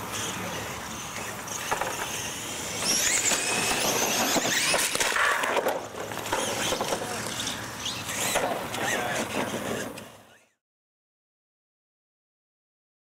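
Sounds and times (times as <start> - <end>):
tyres on pavement: 0.0 - 10.5
toy truck motors whining: 0.0 - 10.6.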